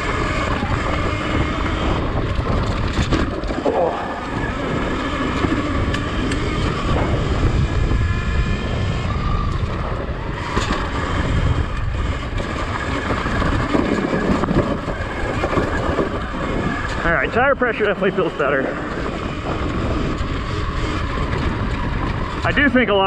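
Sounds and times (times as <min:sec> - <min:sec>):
dirt bike rolling with wind noise: 0:00.0 - 0:23.0
knocks and rattles over bumps: 0:00.0 - 0:23.0.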